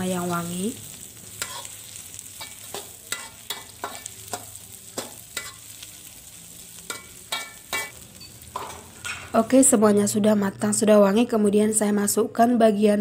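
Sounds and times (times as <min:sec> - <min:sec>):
food sizzling in hot oil: 0:00.0 - 0:09.8
spatula scraping a metal wok: 0:01.0 - 0:09.4.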